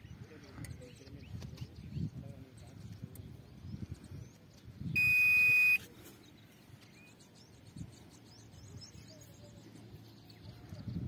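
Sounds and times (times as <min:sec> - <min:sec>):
high electronic beep: 0:05.0 - 0:05.8.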